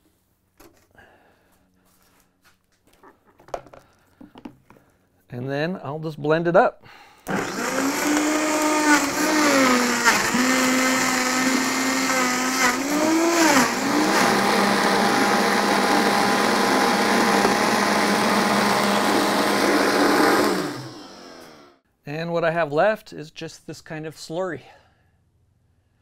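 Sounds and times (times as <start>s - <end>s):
blender motor pureeing: 7.3s - 21.8s.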